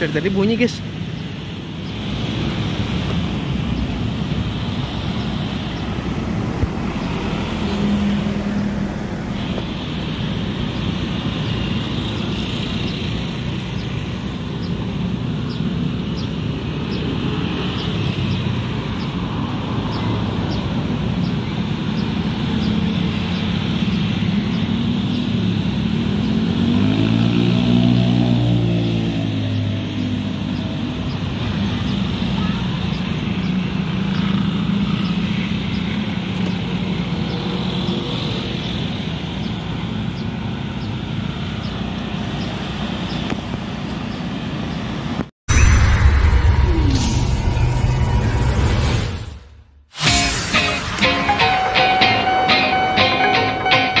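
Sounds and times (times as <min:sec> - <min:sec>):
motorcycles passing: 0:00.0 - 0:45.0, 0:50.5 - 0:54.0
road traffic: 0:00.0 - 0:54.0
vehicle engine passing by: 0:25.9 - 0:30.9.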